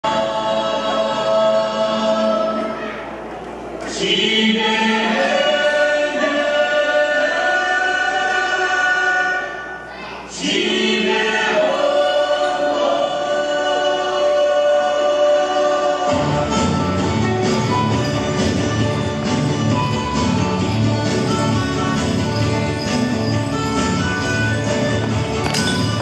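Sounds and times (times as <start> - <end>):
group singing in chorus: 0.0 - 2.8, 3.8 - 17.6.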